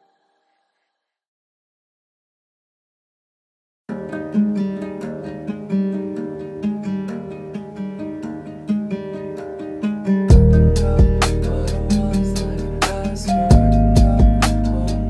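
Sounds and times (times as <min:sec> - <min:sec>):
acoustic guitar background music: 0:03.9 - 0:15.0.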